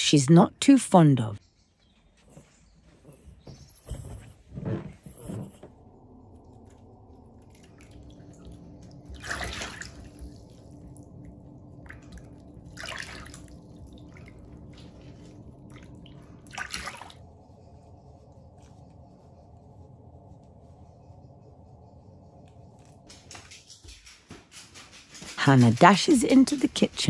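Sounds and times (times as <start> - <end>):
bathwater splashing and sloshing: 7.3 - 17.4.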